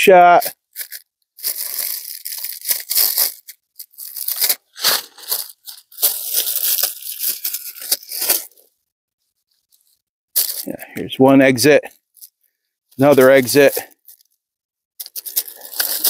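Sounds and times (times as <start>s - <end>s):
foil wrapper crinkling: 0.6s - 8.7s, 9.6s - 10.7s, 12.0s - 14.4s, 15.0s - 16.0s.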